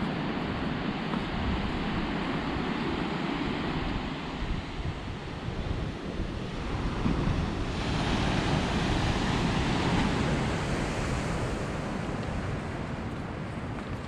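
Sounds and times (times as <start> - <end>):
ocean surf breaking: 0.0 - 14.0
wind noise on microphone: 0.0 - 14.0.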